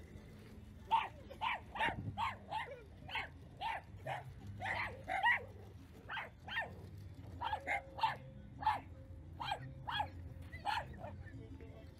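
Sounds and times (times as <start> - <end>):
small dog barking: 0.9 - 5.5, 6.1 - 6.8, 7.4 - 11.1.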